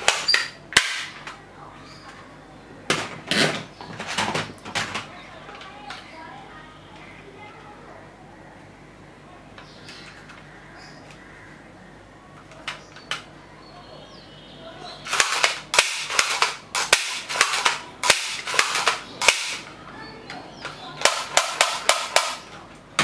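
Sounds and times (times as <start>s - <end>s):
toy rifle electronic gunfire: 0.0s - 1.2s, 15.0s - 19.7s, 21.0s - 22.5s.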